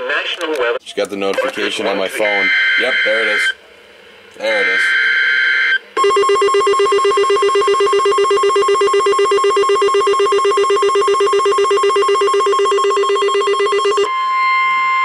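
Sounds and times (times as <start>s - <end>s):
rapid electronic alarm beeps: 2.2s - 3.6s, 4.4s - 15.0s.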